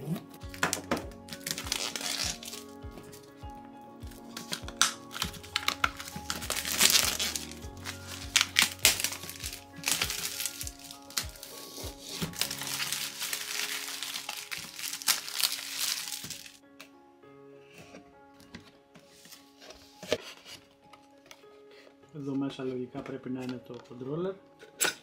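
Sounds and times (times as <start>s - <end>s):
plastic wrap crinkling: 0.5s - 3.4s, 4.1s - 16.6s.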